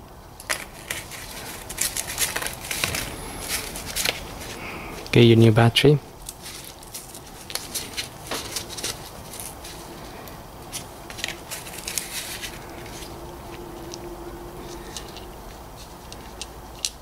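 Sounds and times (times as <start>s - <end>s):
plastic blister packaging crackling: 0.4s - 5.3s, 6.1s - 14.0s.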